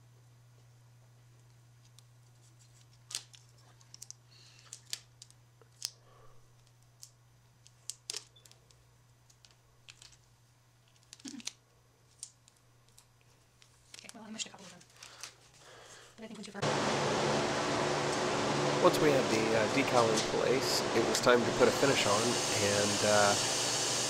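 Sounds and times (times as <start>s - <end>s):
plastic tape crinkling: 1.4s - 15.6s.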